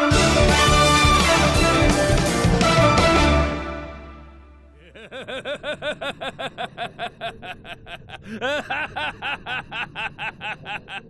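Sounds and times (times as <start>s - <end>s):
man chuckling laugh: 4.8s - 11.0s.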